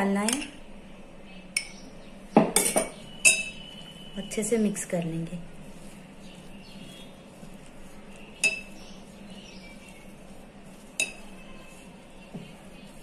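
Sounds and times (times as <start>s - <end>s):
flour being mixed by hand: 1.9s - 13.0s
glass clinks: 2.5s - 3.6s.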